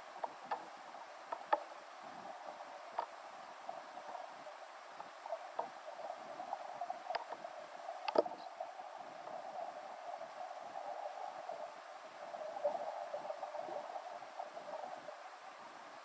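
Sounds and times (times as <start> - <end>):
muffled underwater hiss: 0.0 - 16.0
sharp underwater clicks: 0.2 - 1.7, 7.1 - 8.5.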